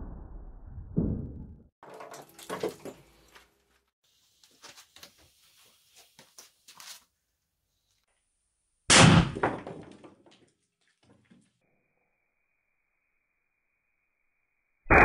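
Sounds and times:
blocks clattering: 0:01.8 - 0:03.4.

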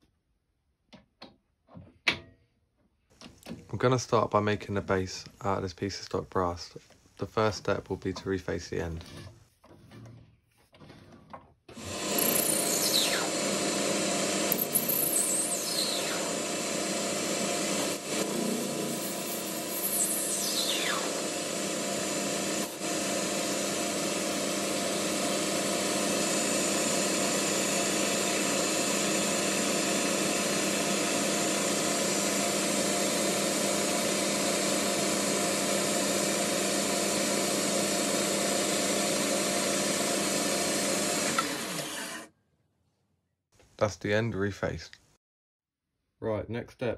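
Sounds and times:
metal lathe running: 0:11.8 - 0:42.3
high whines falling in pitch: 0:14.5 - 0:17.2, 0:18.3 - 0:22.0.

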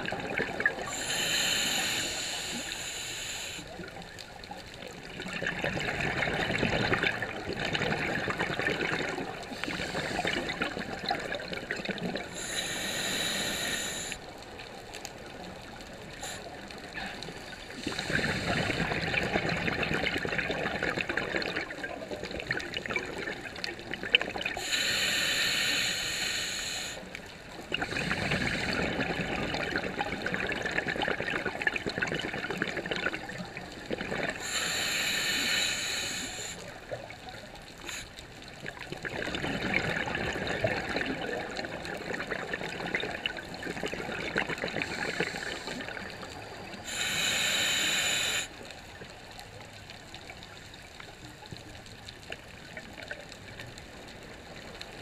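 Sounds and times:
exhaled bubbles crackling underwater: 0:00.0 - 0:55.0
regulator hissing inhalation: 0:00.9 - 0:03.7, 0:09.6 - 0:10.5, 0:12.3 - 0:14.2, 0:24.6 - 0:27.1, 0:34.4 - 0:36.7, 0:44.8 - 0:46.0, 0:46.8 - 0:48.6.

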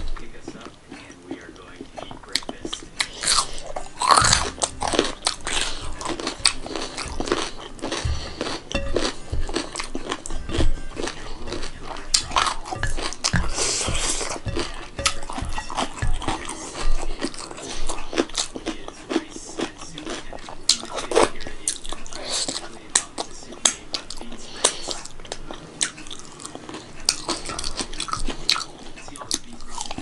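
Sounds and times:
chewing and crunching: 0:00.0 - 0:30.0.

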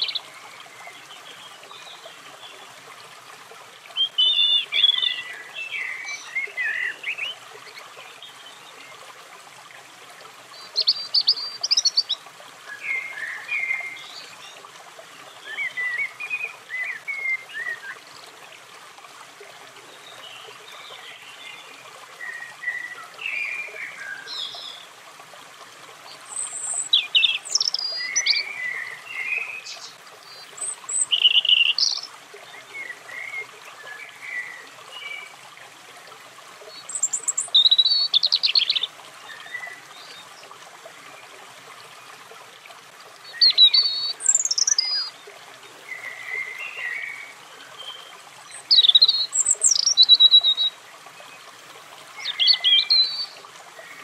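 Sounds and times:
robin singing: 0:00.0 - 0:02.6, 0:04.0 - 0:08.7, 0:10.6 - 0:14.6, 0:26.2 - 0:35.3, 0:36.7 - 0:40.2, 0:43.2 - 0:45.2, 0:45.8 - 0:50.8, 0:52.1 - 0:54.0.

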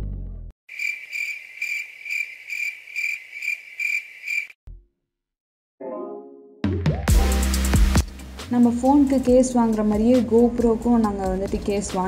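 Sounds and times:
music: 0:00.0 - 0:00.5, 0:05.8 - 0:12.0
insect-like chirping trill: 0:00.7 - 0:04.6.

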